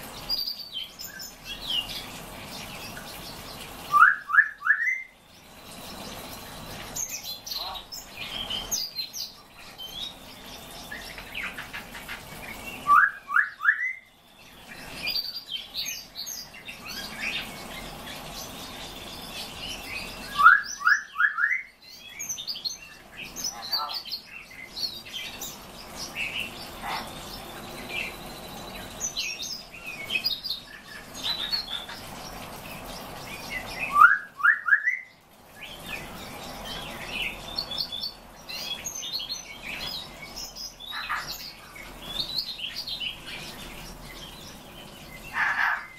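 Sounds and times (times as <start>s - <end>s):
songbirds chirping and twittering: 0.0s - 45.9s.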